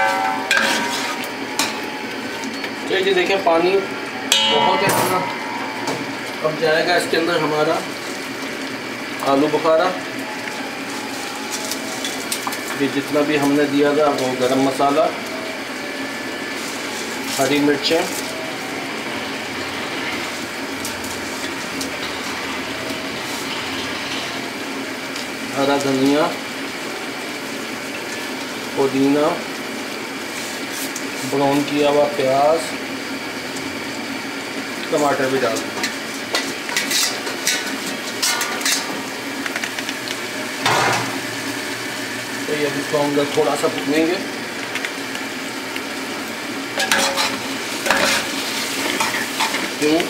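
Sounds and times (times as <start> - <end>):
metal plate scraping pot rim: 0.0 - 1.3, 46.8 - 48.4
pot boiling hard: 0.0 - 50.0.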